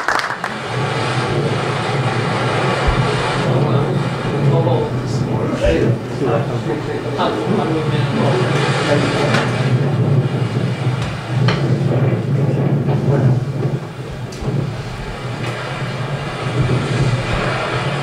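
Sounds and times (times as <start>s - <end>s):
water rushing past hull: 0.0s - 18.0s
wind buffeting microphone: 0.0s - 18.0s.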